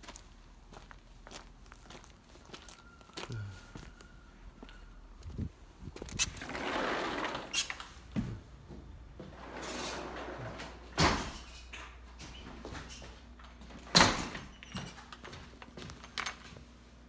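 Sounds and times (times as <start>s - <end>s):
sliding glass door rolling: 6.2s - 8.0s, 9.0s - 11.7s.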